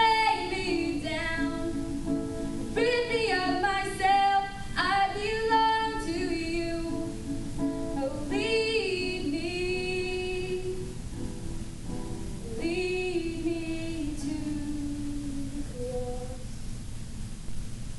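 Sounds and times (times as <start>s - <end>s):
girl singing: 0.0s - 2.2s, 2.8s - 7.3s, 7.9s - 10.9s, 12.4s - 16.5s
guitar accompaniment: 0.0s - 16.5s.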